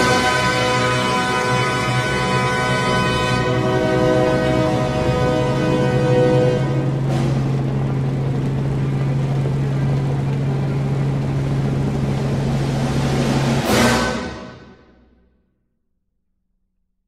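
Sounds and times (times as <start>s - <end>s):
helicopter engine and rotor hum: 4.5s - 13.6s.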